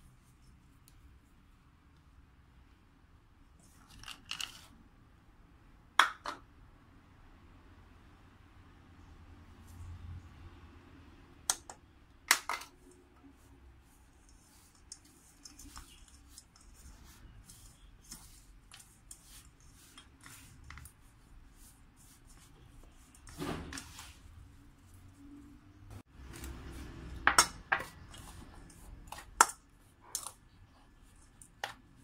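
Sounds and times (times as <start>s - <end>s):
hands mixing dough in bowl: 11.1s - 32.0s.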